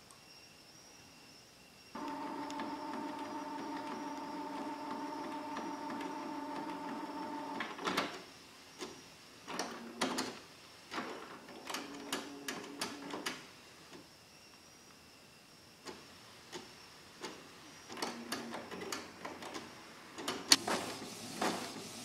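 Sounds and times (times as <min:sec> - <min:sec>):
printer motor whir: 0:02.0 - 0:07.9
printer mechanical clicks: 0:11.0 - 0:13.4.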